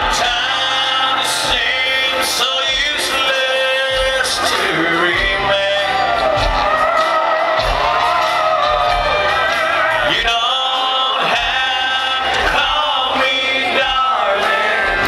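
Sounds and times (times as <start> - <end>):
man singing: 0.0 - 7.0, 9.3 - 15.0
country band playing: 0.0 - 15.0.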